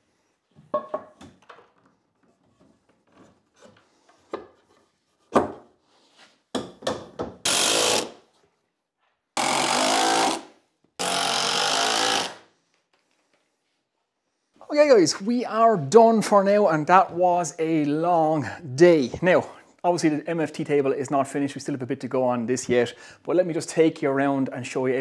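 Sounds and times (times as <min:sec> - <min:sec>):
drill driving screws into wood: 0:07.4 - 0:08.2, 0:09.4 - 0:12.5.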